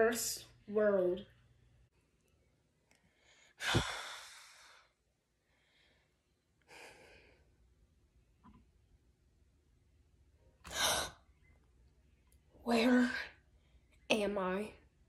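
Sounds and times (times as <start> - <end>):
soft breath out: 3.0 - 7.6
boy sighing heavily: 3.6 - 4.9.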